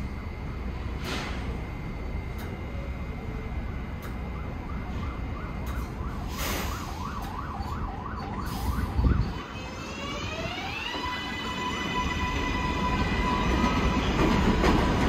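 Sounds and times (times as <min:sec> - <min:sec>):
siren yelping: 0:04.3 - 0:14.2
train motors whining: 0:08.5 - 0:15.0.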